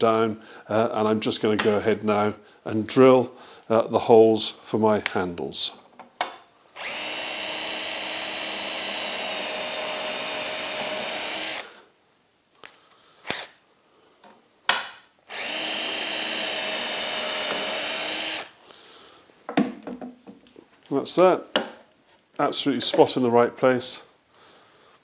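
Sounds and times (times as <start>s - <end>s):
cordless drill boring wood: 6.8s - 11.8s, 13.2s - 13.6s, 15.3s - 18.6s.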